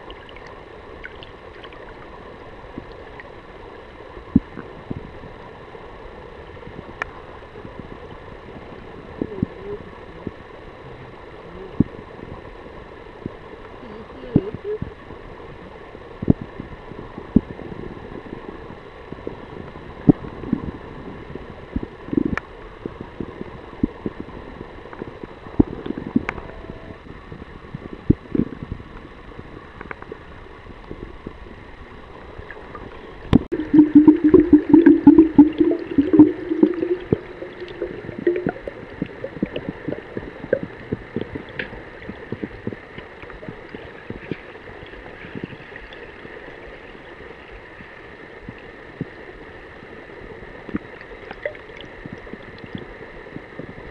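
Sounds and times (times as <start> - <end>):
muffled underwater gurgling: 0.0 - 53.9
dense bubbling rattle: 33.3 - 42.8.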